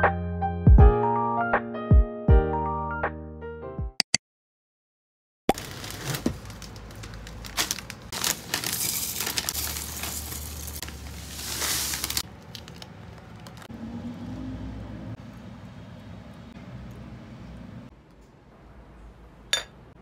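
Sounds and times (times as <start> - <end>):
cereal pouring into glass cup: 8.2 - 12.8.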